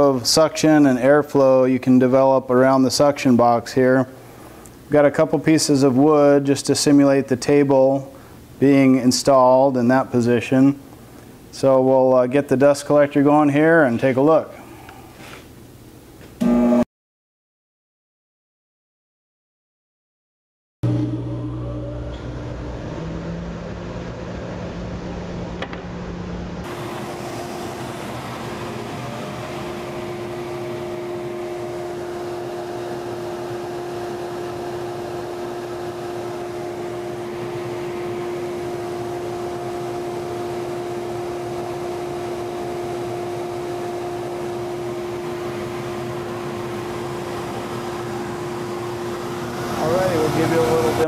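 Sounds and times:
steady hum: 0.0 - 16.8, 20.8 - 51.0
dust collector air rushing: 20.9 - 51.0.

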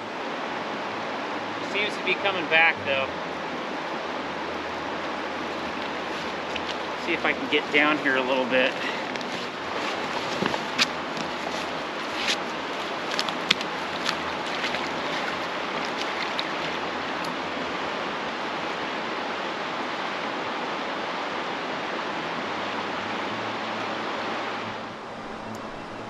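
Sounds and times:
river current rushing: 0.0 - 26.0
footsteps through dry grass: 8.7 - 16.7.

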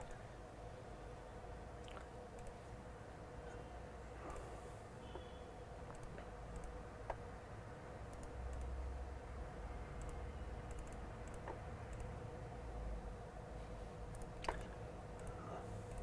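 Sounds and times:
faint hum: 0.0 - 16.0
computer clicks: 2.3 - 2.6, 5.1 - 7.2, 8.1 - 8.8, 10.0 - 12.2, 14.1 - 16.0.

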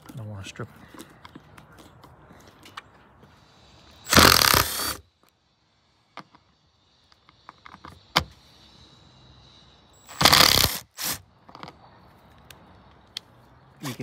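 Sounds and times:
drill bursts: 3.7 - 5.0, 8.8 - 11.2
drill bit clicking on screw: 4.1 - 5.0.

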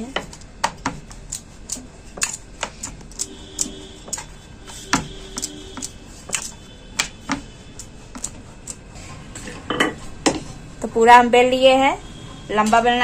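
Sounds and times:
rolling pin knocking on board: 4.9 - 7.5.

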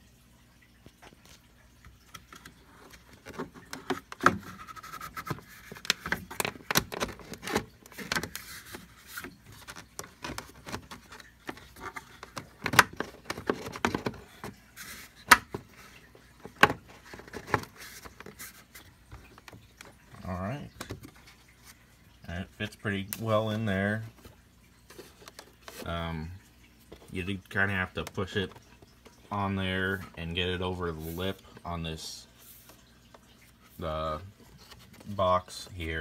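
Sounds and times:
air filter clicking and rubbing: 2.0 - 21.8.

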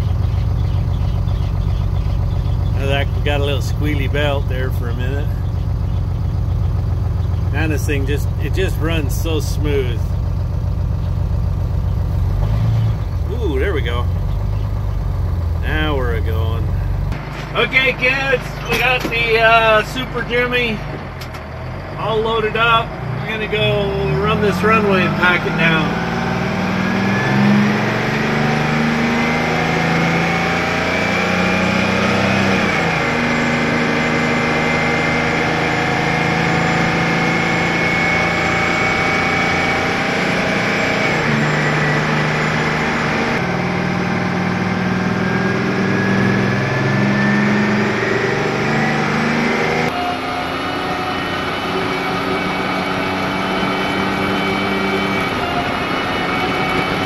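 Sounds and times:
truck engine pulling under load: 0.0 - 57.0.

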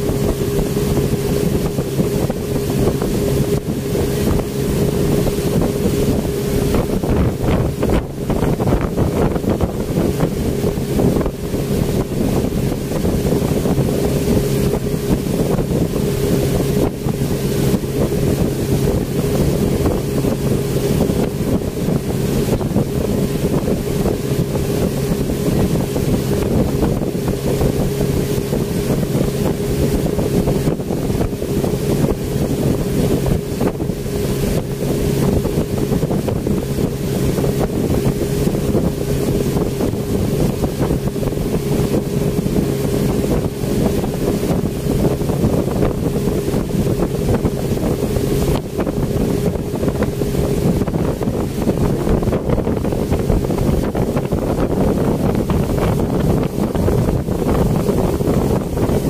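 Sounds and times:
speedboat engine running: 0.0 - 59.0
wind buffeting microphone: 0.0 - 59.0.

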